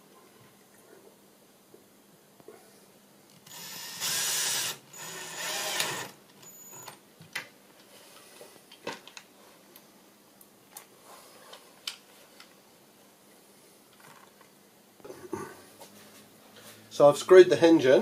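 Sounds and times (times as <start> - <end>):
cordless drill driving screw: 3.5 - 6.2.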